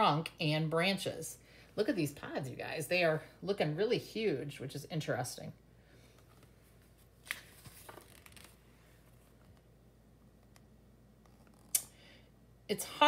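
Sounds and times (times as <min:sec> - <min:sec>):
book pages rustling: 0:06.0 - 0:09.7.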